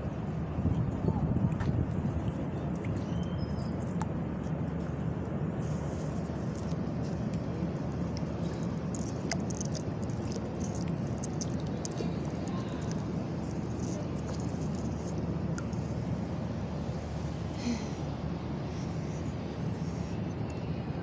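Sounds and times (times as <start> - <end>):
low outdoor background rumble: 0.0 - 21.0.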